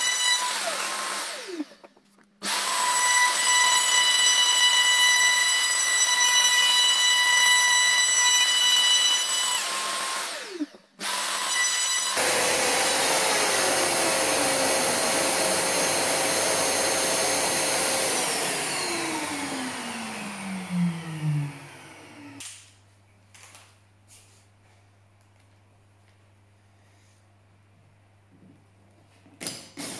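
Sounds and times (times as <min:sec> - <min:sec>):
router whining: 0:00.0 - 0:22.5.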